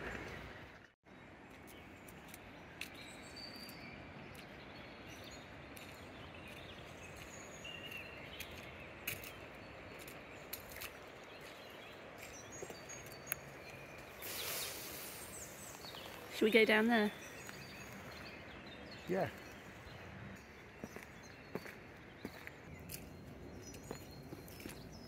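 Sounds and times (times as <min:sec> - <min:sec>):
river flowing far below: 0:00.0 - 0:22.6
bird chirps: 0:01.7 - 0:25.0.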